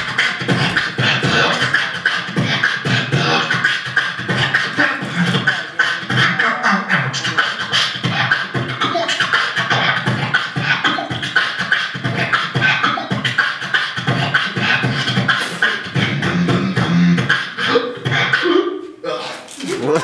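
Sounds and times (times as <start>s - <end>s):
man beatboxing: 0.0s - 20.0s.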